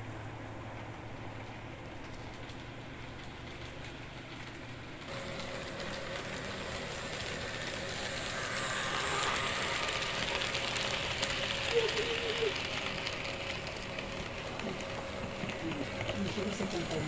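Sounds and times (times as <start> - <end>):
model train wheels clicking: 1.9 - 17.0
motor whine: 5.1 - 17.0.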